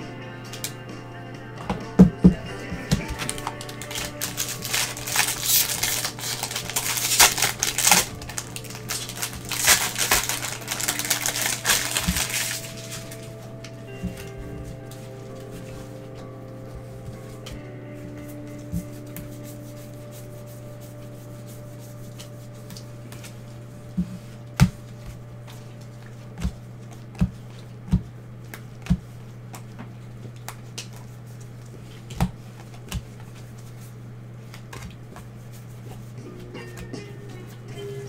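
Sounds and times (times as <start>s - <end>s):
steady low hum: 0.0s - 38.0s
cards tapping and clicking: 1.7s - 13.3s
cards flipped through: 2.9s - 15.4s.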